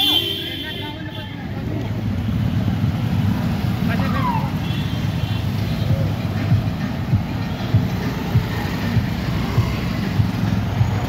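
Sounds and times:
motorcycles riding past: 0:07.7 - 0:11.0.

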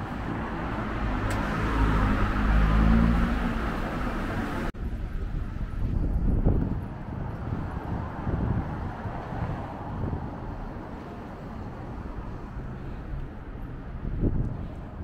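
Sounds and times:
road traffic passing: 0:00.0 - 0:15.0
wind buffeting microphone: 0:04.7 - 0:15.0.

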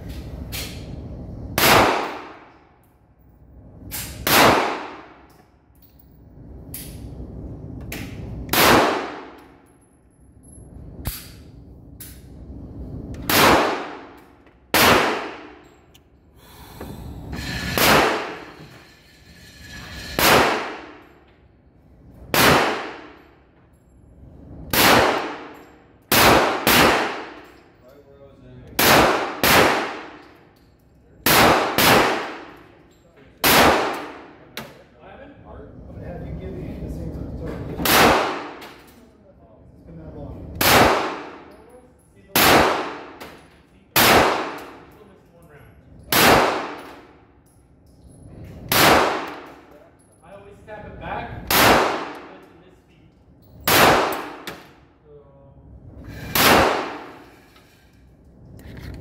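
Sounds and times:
gunshots: 0:01.6 - 0:02.4, 0:04.2 - 0:05.2, 0:08.5 - 0:09.4, 0:13.2 - 0:15.6, 0:17.8 - 0:18.6, 0:20.2 - 0:21.0, 0:22.3 - 0:23.2, 0:24.7 - 0:27.4, 0:28.8 - 0:30.2, 0:31.2 - 0:32.5, 0:33.4 - 0:34.3, 0:37.8 - 0:38.6, 0:40.6 - 0:41.5, 0:42.3 - 0:43.2, 0:44.0 - 0:44.8, 0:46.1 - 0:47.1, 0:48.7 - 0:49.5, 0:51.4 - 0:52.4, 0:53.6 - 0:54.6, 0:56.3 - 0:57.3.

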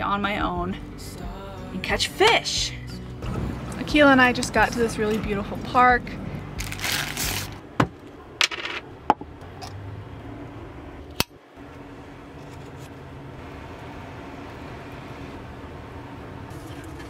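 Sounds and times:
plastic bread bag rustling: 0:06.6 - 0:07.6.

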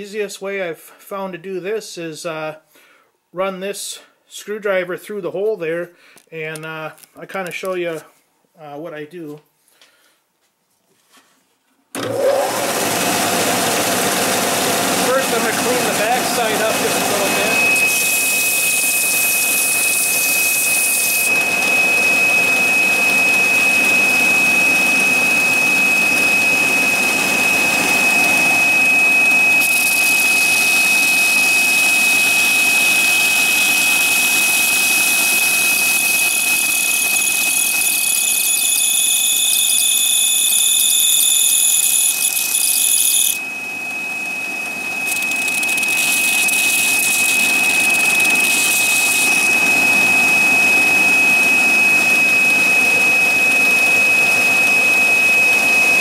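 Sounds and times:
belt sander running: 0:12.0 - 0:56.0.

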